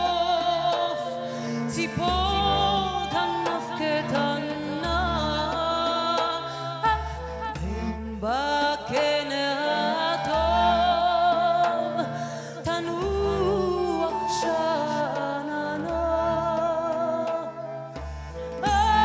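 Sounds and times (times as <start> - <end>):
woman singing: 0.0 - 19.0.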